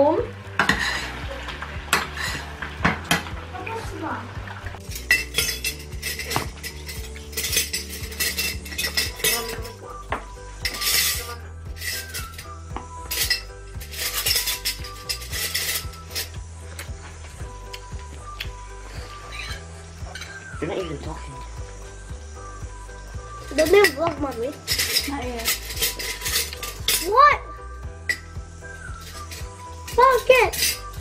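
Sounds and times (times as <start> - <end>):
utensils clinking on pan and plate: 0.5 - 3.4, 4.8 - 16.9, 18.9 - 20.5, 23.0 - 27.3, 28.1 - 31.0.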